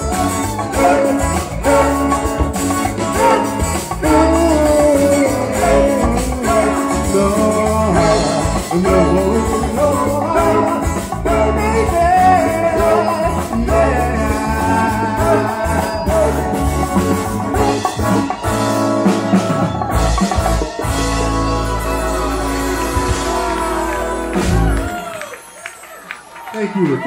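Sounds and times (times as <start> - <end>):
person singing: 0.0 - 17.2, 21.2 - 25.1
live soft rock band: 0.0 - 26.2.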